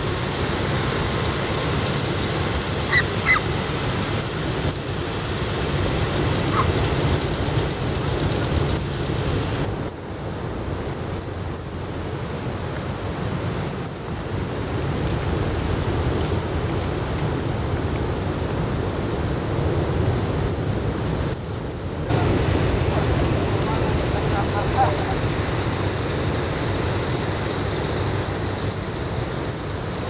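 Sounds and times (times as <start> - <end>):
wind noise on microphone: 0.0 - 30.0.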